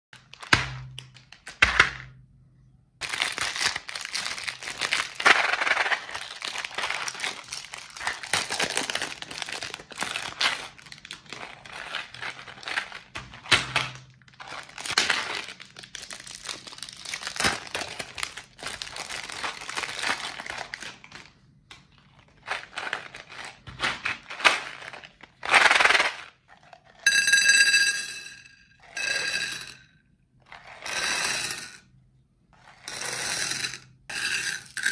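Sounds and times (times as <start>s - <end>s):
plastic wrapper crinkling and tearing: 0.2s - 1.6s, 3.0s - 25.8s
candies clattering onto a plate: 3.0s - 20.8s, 32.8s - 34.9s.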